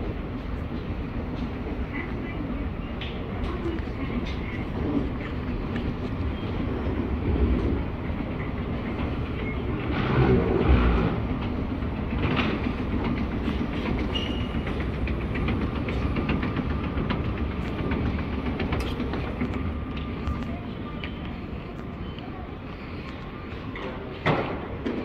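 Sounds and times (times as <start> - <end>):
vehicle rumbling and rattling: 3.3 - 22.0.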